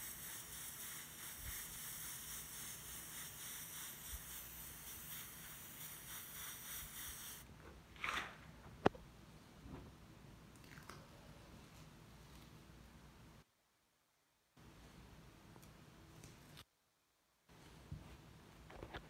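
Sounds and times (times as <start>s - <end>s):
airbrush hissing: 0.0s - 7.4s.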